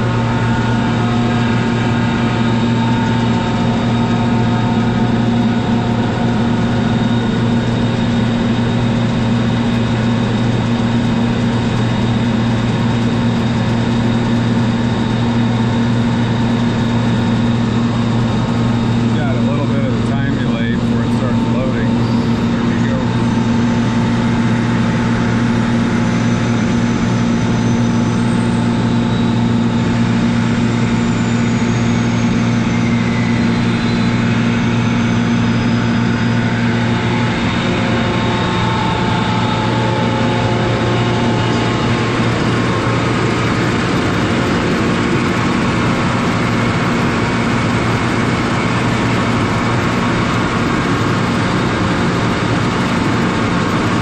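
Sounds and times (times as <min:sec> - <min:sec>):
air compressor humming: 0:00.0 - 0:54.0.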